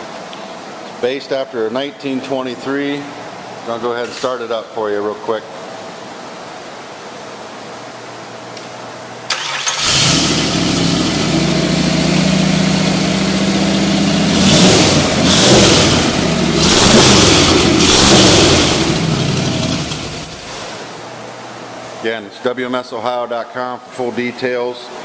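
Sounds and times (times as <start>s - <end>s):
engine cranking: 9.3s - 11.7s, 14.3s - 20.4s
vee-eight engine idling and revving: 9.8s - 20.5s.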